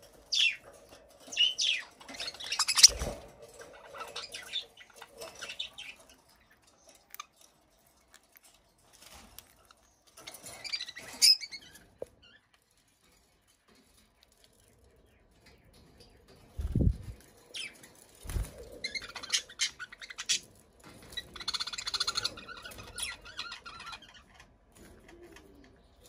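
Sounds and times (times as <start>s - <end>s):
wings fluttering: 0.1s - 6.0s, 16.4s - 25.7s
budgerigars chirping: 1.3s - 3.1s.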